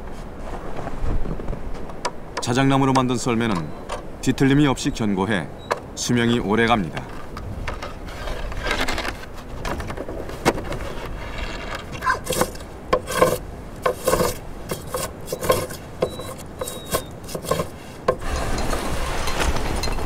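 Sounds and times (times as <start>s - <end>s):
hand plane shaving wood: 11.1s - 18.3s.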